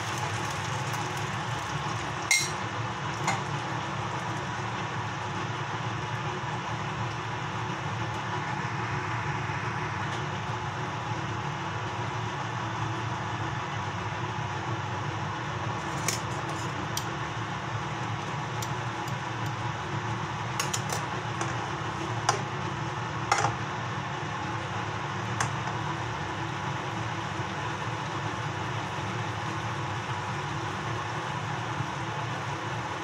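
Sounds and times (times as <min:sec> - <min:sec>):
food sizzling in frying pan: 0:00.0 - 0:06.0.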